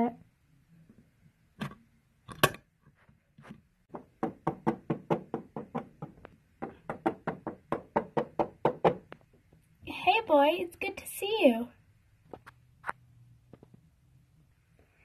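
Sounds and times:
toy figure tapping on play mat: 3.9 - 9.2.

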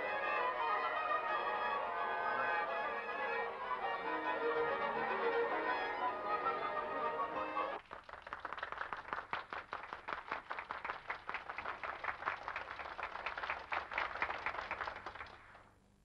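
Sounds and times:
orchestra strings playing: 0.0 - 7.8
audience applause: 0.8 - 15.6.

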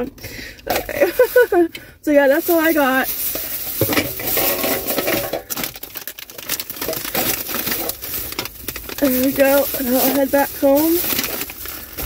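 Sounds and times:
items handled inside car: 0.0 - 12.0
rain on car: 2.1 - 4.1, 5.5 - 12.0.

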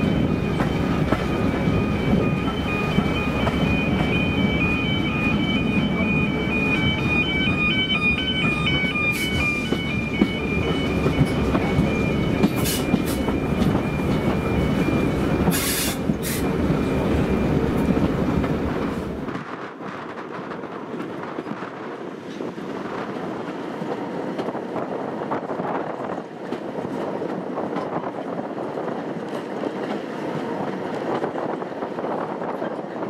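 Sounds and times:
train carriage rumbling: 0.0 - 33.0.

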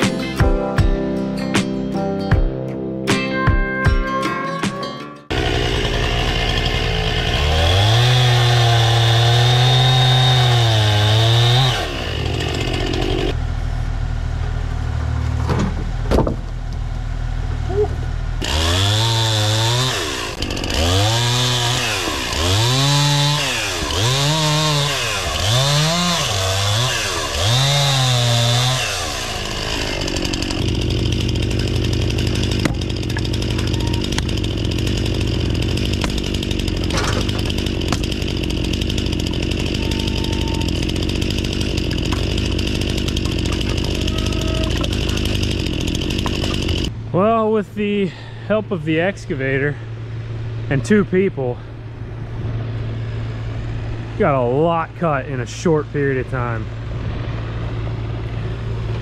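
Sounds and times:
chainsaw revving and cutting logs: 5.3 - 13.4, 18.3 - 47.1.

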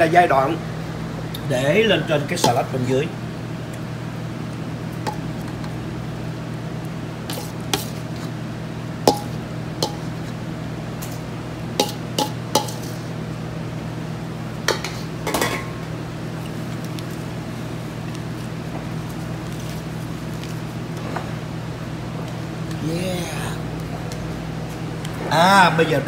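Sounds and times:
steady low hum: 0.0 - 26.0
dishes and utensils clinking: 11.8 - 13.0, 14.7 - 15.8.

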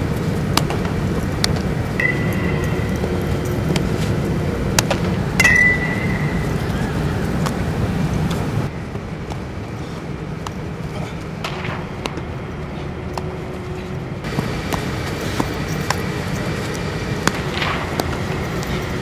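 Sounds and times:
indoor hall rumble: 0.0 - 19.0
baseballs hit and caught: 0.5 - 7.6, 11.3 - 12.4, 13.1 - 13.4, 14.2 - 16.1, 16.7 - 19.0.

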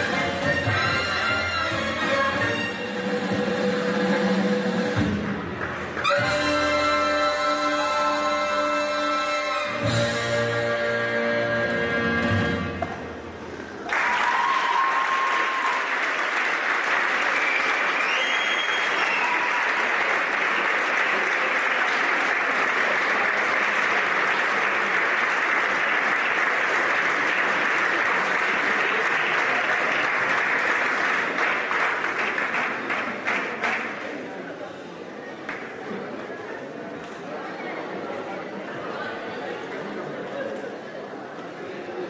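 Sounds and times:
audience applauding and cheering: 13.8 - 34.0
high calls or whistles: 17.4 - 19.4.

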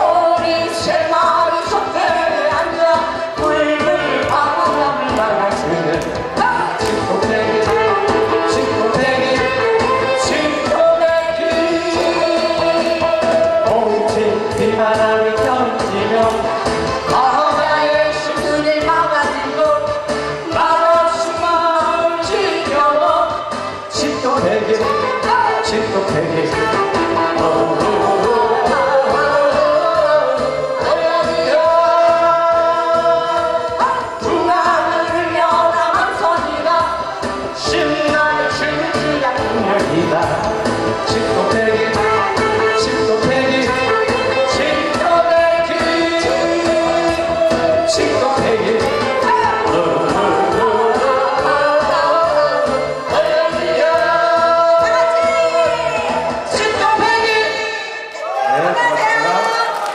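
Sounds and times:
woman singing into a microphone: 0.0 - 16.4, 17.0 - 40.2, 41.1 - 57.9
backing music with steady beat: 0.0 - 58.3.

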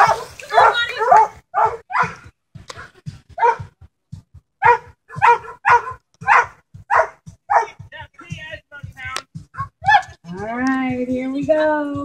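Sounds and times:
dog barking: 0.0 - 2.2, 3.4 - 3.7, 4.6 - 7.8.

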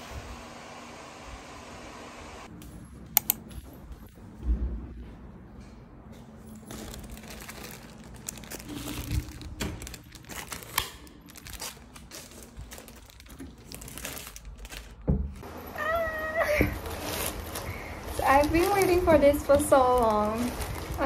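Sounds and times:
light switch clicking: 3.2 - 3.4
loud thump: 4.4 - 5.3
plastic mailer bag crinkling: 6.6 - 21.0.

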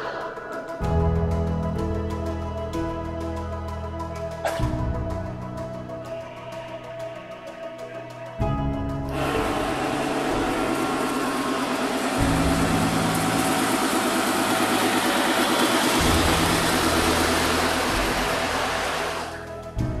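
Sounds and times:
background music: 0.0 - 20.0
fast rhythmic mechanical running: 8.4 - 19.8.

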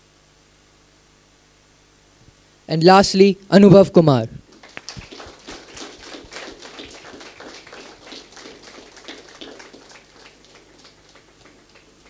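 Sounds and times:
audience clapping: 4.4 - 12.0.

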